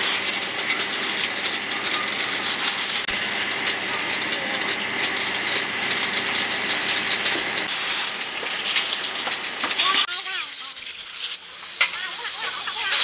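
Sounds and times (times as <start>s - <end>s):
hose nozzle hissing jet: 0.0s - 13.0s.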